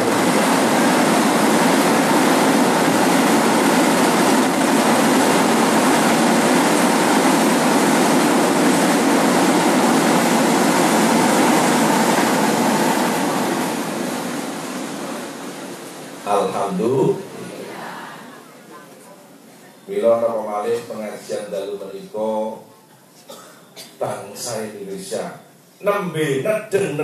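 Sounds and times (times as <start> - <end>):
train wheels rumbling: 0.0 - 15.9.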